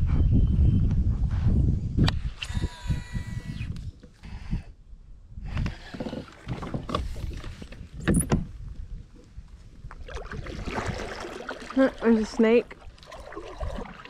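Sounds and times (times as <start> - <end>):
paddle strokes splashing water: 9.9 - 14.0.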